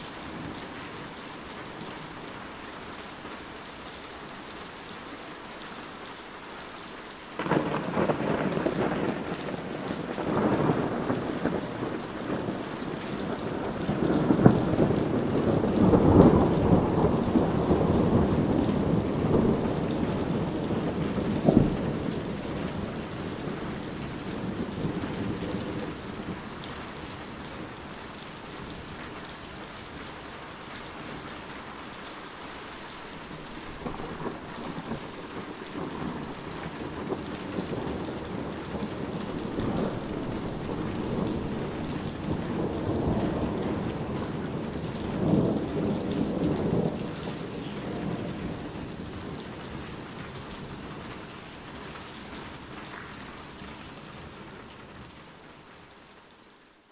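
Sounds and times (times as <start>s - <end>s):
heavy rain falling: 0.0s - 56.9s
rolling thunder rumble: 7.4s - 27.8s, 33.7s - 50.1s.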